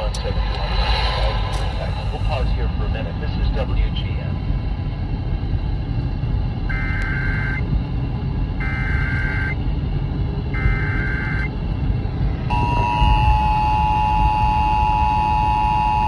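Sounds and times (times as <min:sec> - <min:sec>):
car road rumble: 0:00.0 - 0:16.0
two-tone attention signal: 0:12.5 - 0:16.0.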